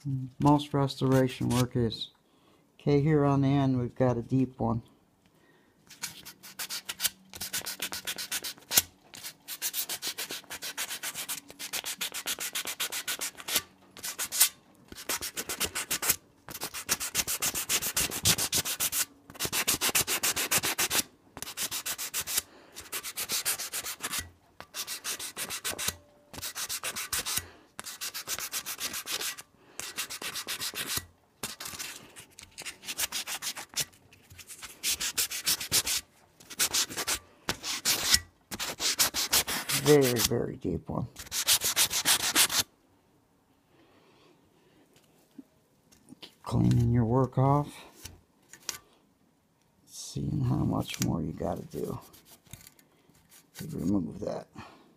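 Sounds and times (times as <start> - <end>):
wet sandpaper rubbing on metal: 6.0 - 32.0, 32.8 - 33.8, 34.6 - 40.4, 41.2 - 42.6.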